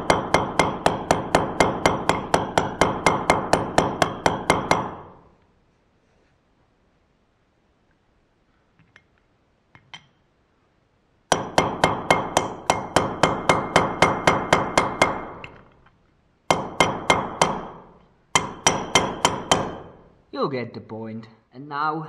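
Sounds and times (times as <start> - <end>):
hammer striking metal tube: 0.0 - 5.3, 11.3 - 15.6, 16.5 - 20.1.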